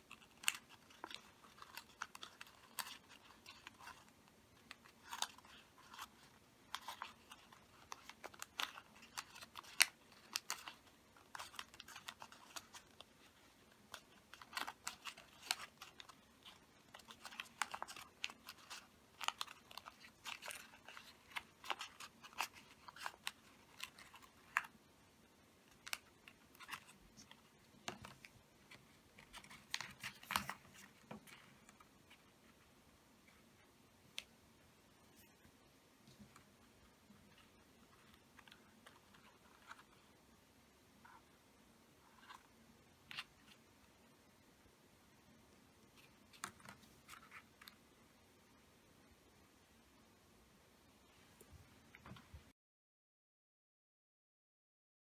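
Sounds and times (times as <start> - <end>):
paper crinkling and crackling: 0.0 - 24.8, 25.6 - 32.6, 36.1 - 40.1, 46.0 - 47.8.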